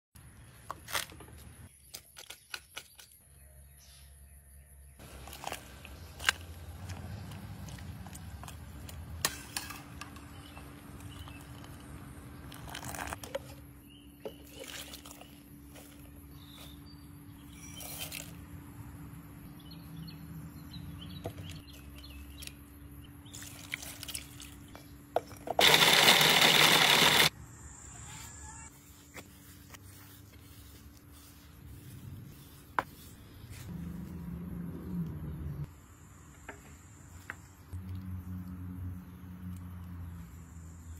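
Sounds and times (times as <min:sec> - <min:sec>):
dry crackles of chili pods: 0:05.0 - 0:09.1
food processor motor running: 0:25.6 - 0:27.3.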